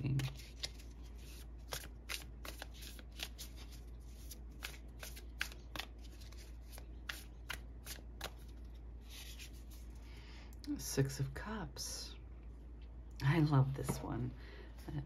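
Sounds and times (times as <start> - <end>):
cards being shuffled: 0.0 - 9.9.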